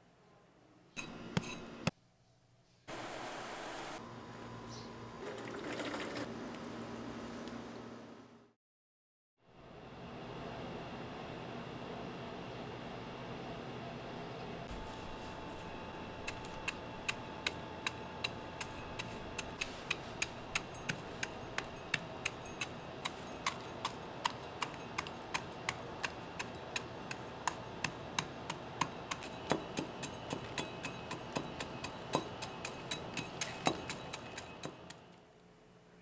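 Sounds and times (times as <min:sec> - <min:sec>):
hand cultivator scratching compost: 0:14.7 - 0:35.0.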